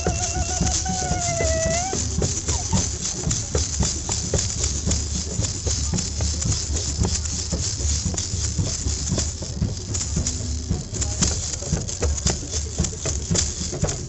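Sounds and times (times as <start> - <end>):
held wavering note: 0.0 - 2.9
maracas shaking: 0.0 - 14.0.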